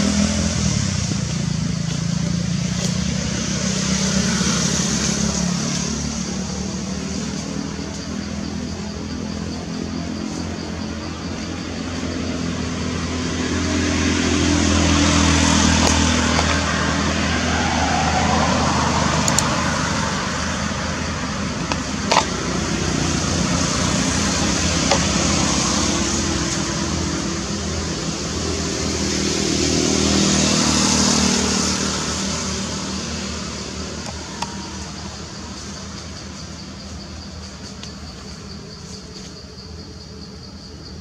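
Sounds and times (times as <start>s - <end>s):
vehicle engines passing: 0.0s - 41.0s.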